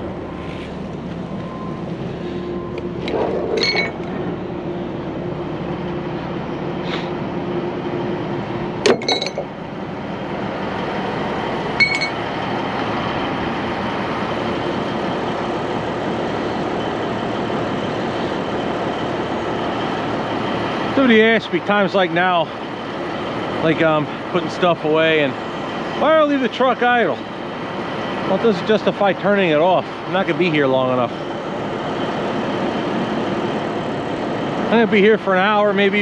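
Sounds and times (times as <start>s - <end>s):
diesel engine idling: 0.0s - 36.0s
metal hooks clinking: 3.5s - 4.0s, 8.9s - 9.5s, 11.8s - 12.2s.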